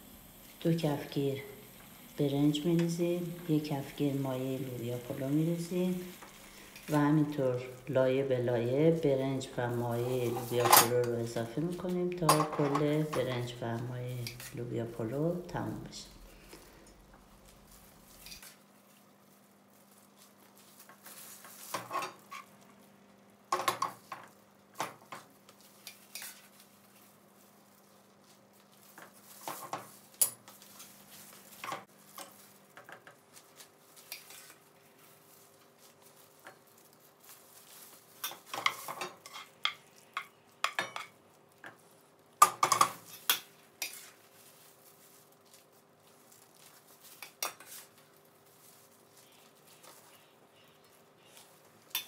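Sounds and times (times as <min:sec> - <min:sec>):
spatula scraping and knocking pots: 0:21.0 - 0:22.5, 0:38.2 - 0:41.8.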